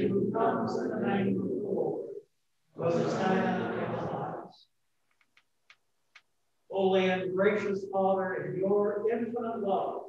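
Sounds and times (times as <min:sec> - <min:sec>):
man speaking: 0:00.0 - 0:02.2, 0:02.8 - 0:04.4, 0:06.7 - 0:10.0.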